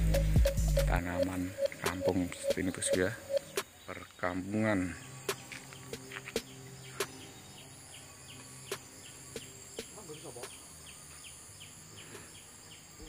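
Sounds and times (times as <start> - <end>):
faint high chirp: 0.0 - 4.3.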